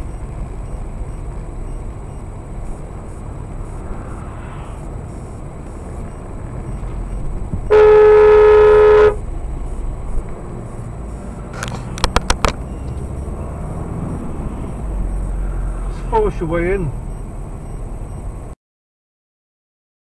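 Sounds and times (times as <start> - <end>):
road and engine noise in car: 0.0 - 18.6
car horn blast: 7.6 - 9.2
sharp clicks: 11.5 - 13.1.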